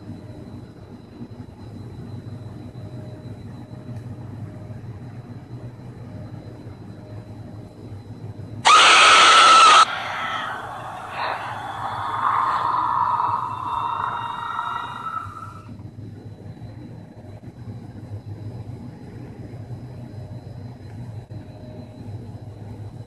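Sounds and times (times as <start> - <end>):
loud harsh scream: 8.6 - 15.7
faint eerie sound: 8.7 - 15.7
low hum: 8.7 - 15.8.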